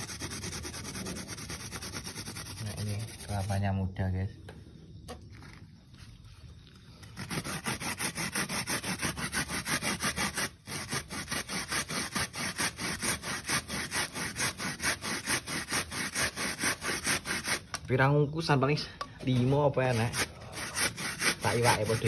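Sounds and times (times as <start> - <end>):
coconut grating rasping strokes: 0.0 - 3.6, 7.0 - 17.8, 19.2 - 22.0.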